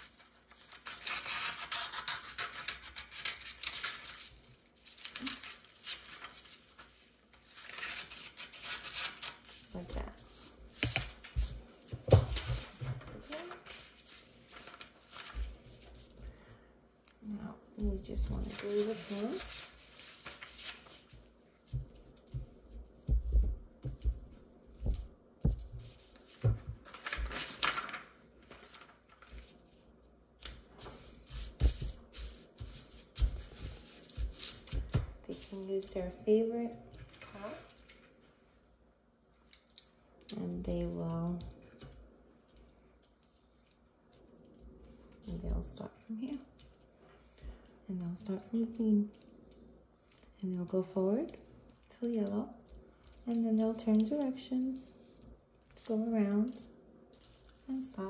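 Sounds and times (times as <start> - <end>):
faint paper rustle: 0.0 - 58.0
scissors cutting paper: 0.4 - 4.2.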